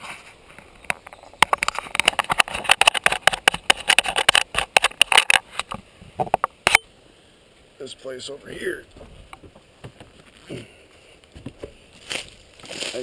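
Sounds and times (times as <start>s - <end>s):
camera handling crackling and scraping: 0.5s - 6.8s.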